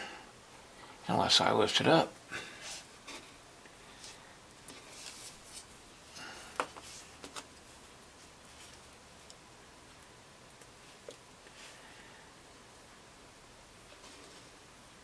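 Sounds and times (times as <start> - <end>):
hands rustling on clay: 3.9 - 5.8.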